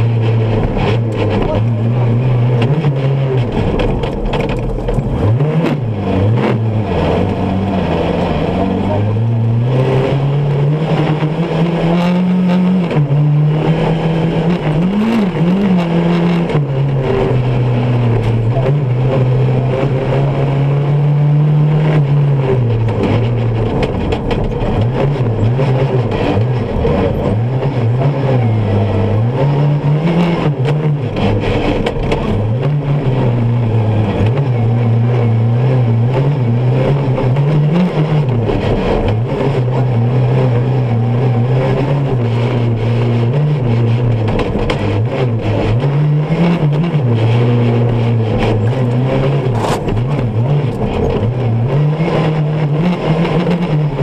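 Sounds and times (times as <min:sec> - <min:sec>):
buggy engine revving: 0:00.0 - 0:54.0
knocks and rattles: 0:03.4 - 0:05.4, 0:22.7 - 0:27.4.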